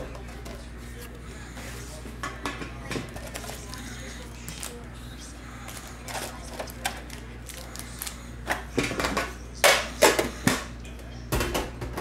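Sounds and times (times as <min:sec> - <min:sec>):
foil packs rustling and crinkling: 0:03.1 - 0:04.9, 0:05.6 - 0:08.2.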